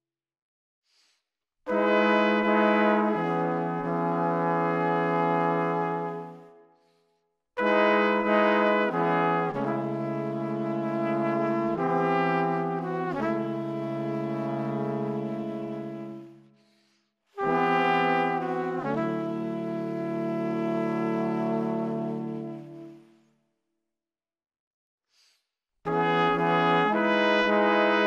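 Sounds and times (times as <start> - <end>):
music of slow held chords: 17.5 - 23.2.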